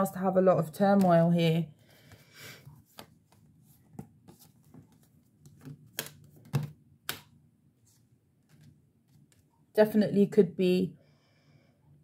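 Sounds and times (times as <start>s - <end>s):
cards clicking and tapping: 2.0s - 7.4s.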